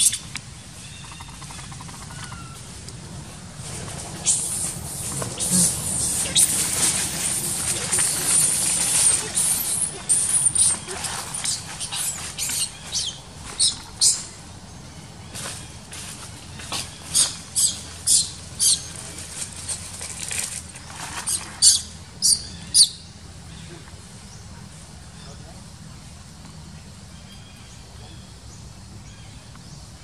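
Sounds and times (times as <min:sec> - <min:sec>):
dry leaves crackling and rustling: 0:02.1 - 0:21.8.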